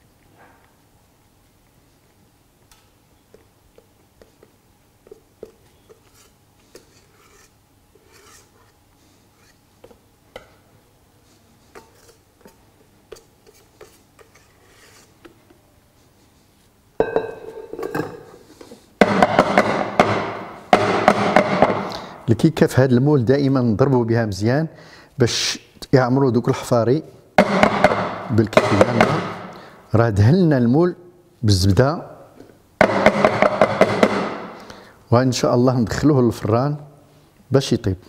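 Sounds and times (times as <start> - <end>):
cake mould banged on counter: 19.0 - 21.9, 27.4 - 29.5, 32.8 - 34.5.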